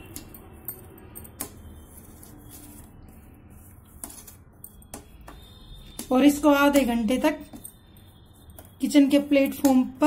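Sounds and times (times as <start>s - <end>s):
spoon scraping sweet mixture: 0.0s - 10.0s.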